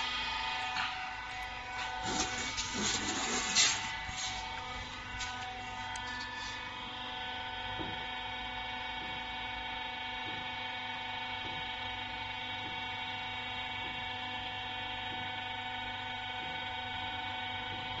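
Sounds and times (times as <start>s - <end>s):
hydraulic pump motor humming: 0.0s - 9.4s.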